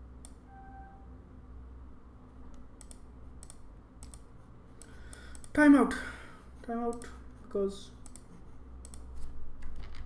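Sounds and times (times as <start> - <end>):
low steady hum: 0.0 - 10.0
computer clicks: 2.5 - 5.6, 8.0 - 9.1.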